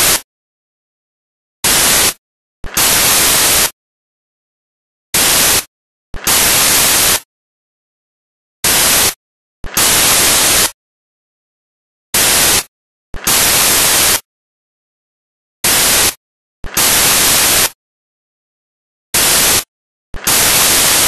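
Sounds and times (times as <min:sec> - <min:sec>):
hissing white-noise static: 0:20.3 - 0:21.0.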